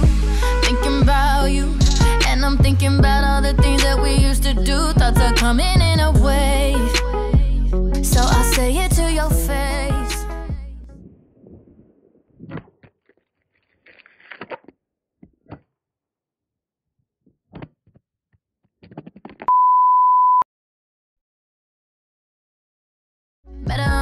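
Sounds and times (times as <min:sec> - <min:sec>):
censor bleep: 0:19.5 - 0:20.5.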